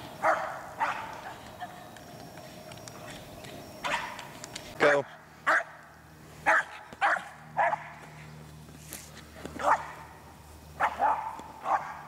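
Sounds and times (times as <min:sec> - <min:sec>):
dog barking: 0:00.2 - 0:01.4, 0:03.8 - 0:04.2, 0:05.4 - 0:05.8, 0:06.4 - 0:08.0, 0:09.6 - 0:10.1, 0:10.8 - 0:12.0.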